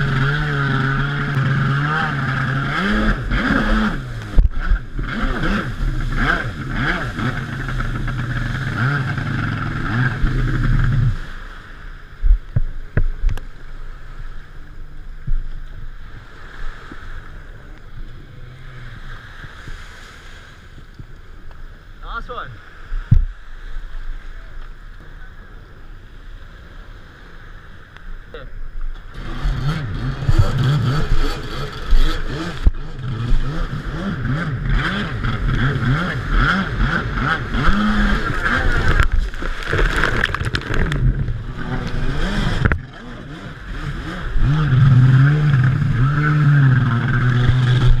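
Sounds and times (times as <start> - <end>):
jet ski engine revving: 0.0 - 48.0
wind on microphone: 22.8 - 48.0.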